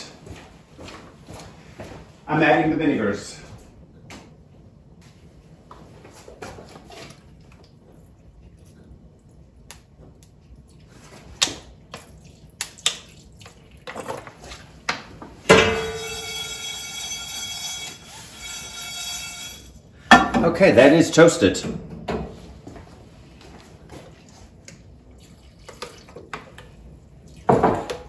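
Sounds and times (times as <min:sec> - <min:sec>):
metal pan clattering: 0:15.5 - 0:17.3.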